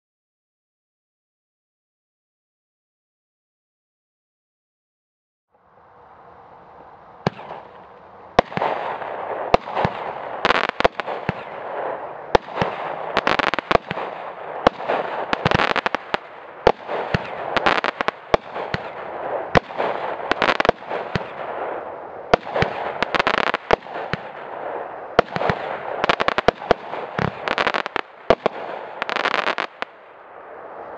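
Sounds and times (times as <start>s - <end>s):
firework cake launch bursts: 8.4s - 30.1s.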